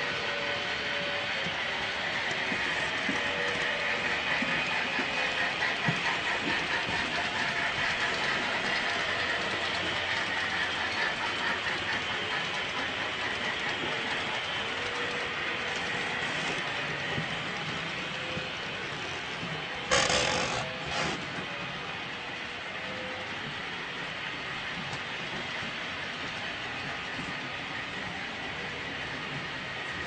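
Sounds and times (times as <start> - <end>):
model train wheels clicking: 0.1 - 21.6.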